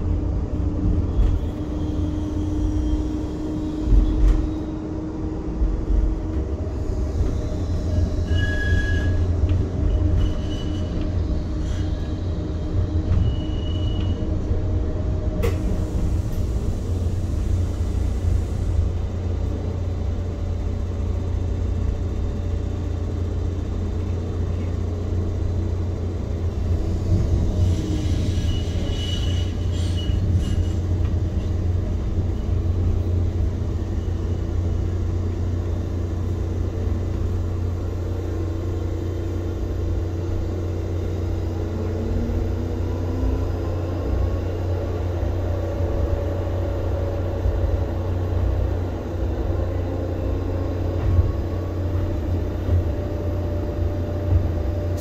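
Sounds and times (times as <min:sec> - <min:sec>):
tram running gear rumble: 0:00.0 - 0:55.0
thin high squeal: 0:08.1 - 0:09.3.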